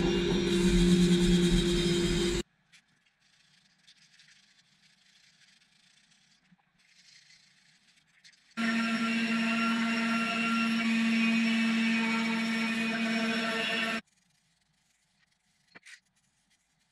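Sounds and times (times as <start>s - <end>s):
angle grinder sanding wood: 0.0s - 2.4s, 8.6s - 14.0s.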